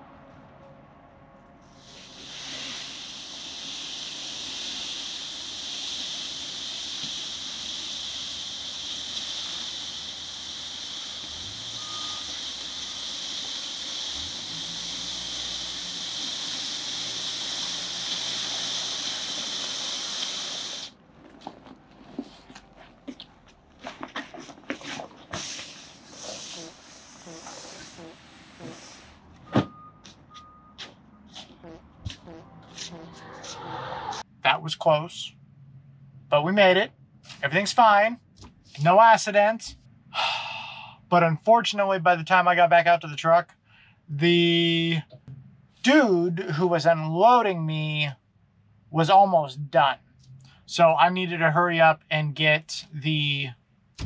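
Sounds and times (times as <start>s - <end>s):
loud steady hiss: 1.8s - 21.0s, 25.3s - 29.0s.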